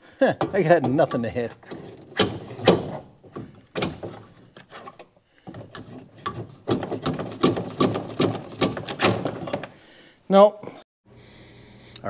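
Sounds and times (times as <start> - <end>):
hand tools and metal parts clattering: 0.3 - 9.8.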